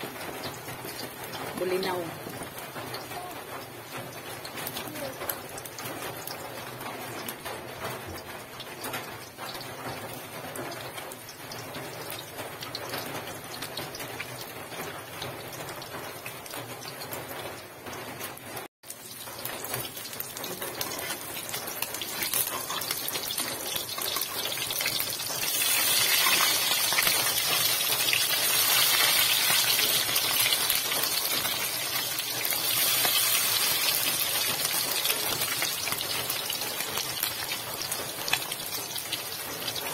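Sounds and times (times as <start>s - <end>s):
omelette sizzling in hot oil: 18.8s - 39.9s.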